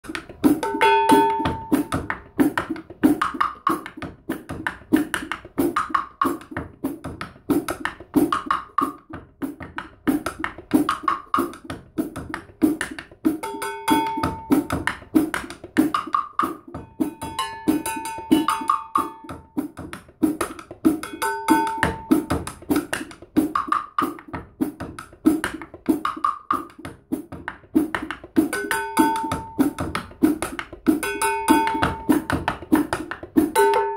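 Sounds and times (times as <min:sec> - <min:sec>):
cymbals: 0:00.6 - 0:02.1, 0:16.7 - 0:19.7, 0:33.5 - 0:33.9
cowbell clanking: 0:00.6 - 0:02.2, 0:13.4 - 0:14.9, 0:16.7 - 0:19.6, 0:21.0 - 0:22.4, 0:28.6 - 0:29.8, 0:31.0 - 0:32.5, 0:33.6 - 0:33.9
ringing metallic note: 0:00.7 - 0:01.9, 0:16.9 - 0:19.4.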